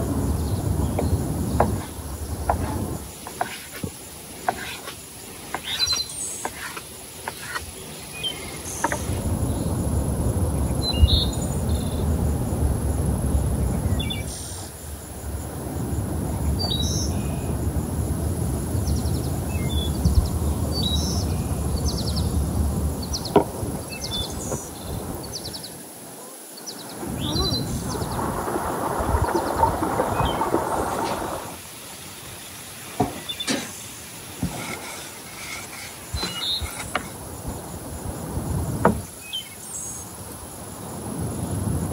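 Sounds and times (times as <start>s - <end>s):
wind rumble on microphone: 0.0s - 3.9s, 8.4s - 25.6s, 26.9s - 31.6s, 36.1s - 39.2s, 40.1s - 41.9s
high insect drone: 0.0s - 41.9s
birds chirping and trilling: 0.2s - 9.2s, 32.9s - 37.0s.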